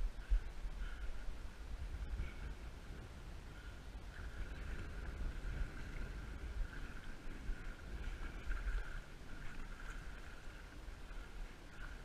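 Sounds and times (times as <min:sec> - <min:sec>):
faint steady whine: 0:00.0 - 0:12.0
wind buffeting microphone: 0:00.0 - 0:12.0.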